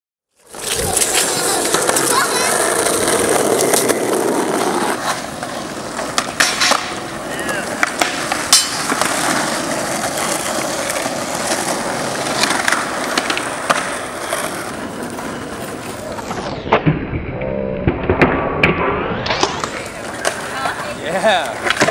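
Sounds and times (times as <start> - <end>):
skateboard wheels rolling on asphalt: 0.3 - 17.0, 18.0 - 21.9
skateboards popping and landing: 0.4 - 21.9.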